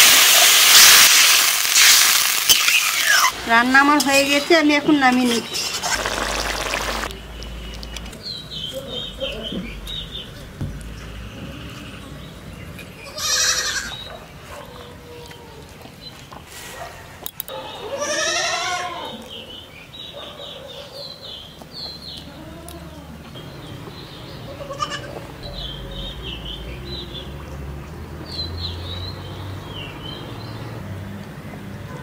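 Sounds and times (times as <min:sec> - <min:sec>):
small birds chirping: 0:04.3 - 0:17.8, 0:19.0 - 0:30.8
animal bleating: 0:13.1 - 0:14.0, 0:17.8 - 0:19.2, 0:24.5 - 0:25.2.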